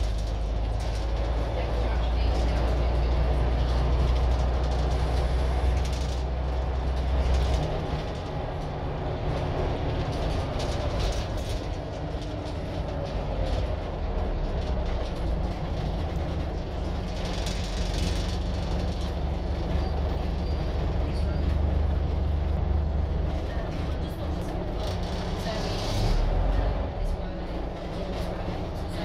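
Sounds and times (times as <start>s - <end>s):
bus body rattling: 0.0s - 29.0s
bus engine droning: 0.0s - 29.0s.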